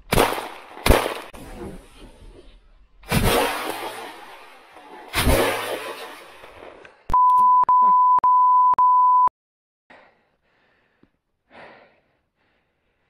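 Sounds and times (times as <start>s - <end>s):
censor bleep: 7.1s - 9.3s.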